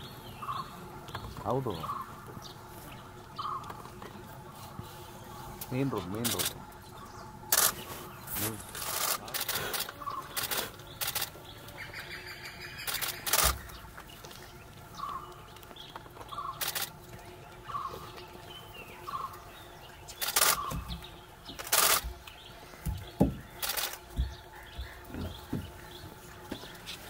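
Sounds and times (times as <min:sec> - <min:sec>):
camera shutters firing: 0:07.5 - 0:07.8, 0:08.8 - 0:11.4, 0:12.8 - 0:13.6, 0:16.6 - 0:16.9, 0:20.2 - 0:20.7, 0:21.6 - 0:22.1, 0:23.6 - 0:24.0.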